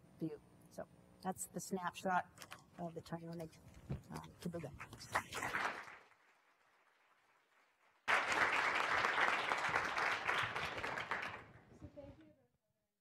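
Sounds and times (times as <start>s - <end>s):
audience applauding: 5.2s - 6.3s, 8.0s - 11.5s.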